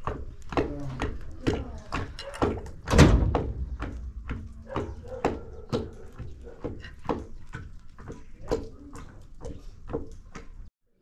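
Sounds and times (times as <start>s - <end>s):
wooden pestle pounding in mortar: 0.0s - 10.7s.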